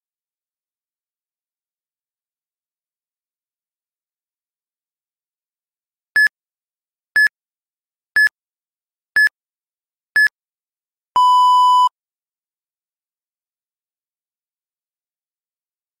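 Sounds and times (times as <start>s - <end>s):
long low timer beep: 11.2s - 11.9s.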